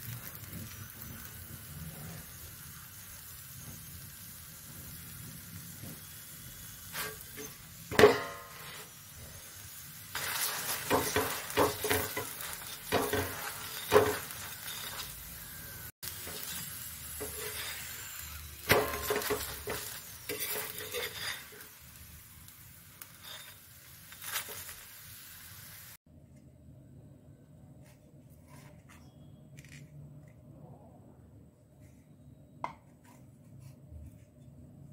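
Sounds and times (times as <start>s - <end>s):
flatbread sizzling on pan: 0.0s - 26.0s
utensil clinking and scraping pan: 10.1s - 15.3s, 16.1s - 18.0s, 18.6s - 21.8s, 23.0s - 24.7s.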